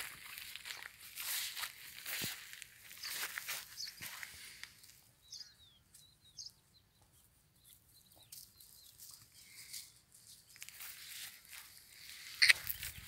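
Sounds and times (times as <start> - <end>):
grain stalks rustling: 0.0 - 5.0, 8.9 - 13.0
bird chirping: 2.9 - 10.6.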